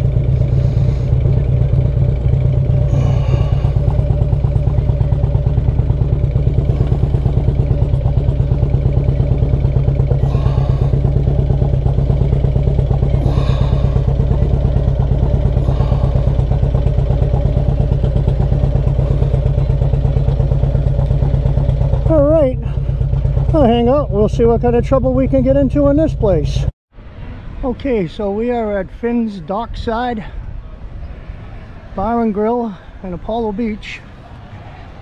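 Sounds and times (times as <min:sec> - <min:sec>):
motorcycle engine idling: 0:00.0 - 0:26.7.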